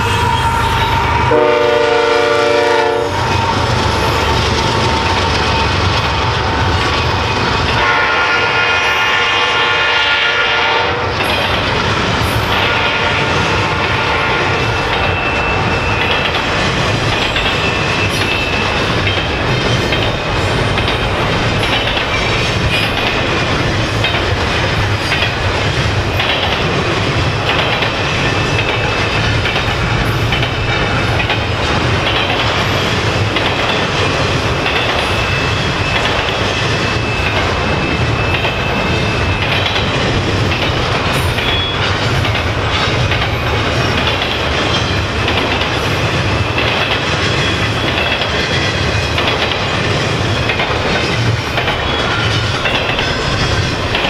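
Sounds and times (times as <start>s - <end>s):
high-pitched wheel squeal: 0.0s - 1.4s
train wheels clattering on rails: 0.0s - 54.0s.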